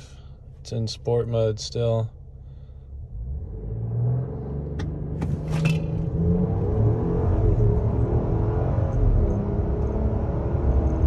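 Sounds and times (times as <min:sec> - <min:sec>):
car engine at full throttle: 0:02.9 - 0:11.0.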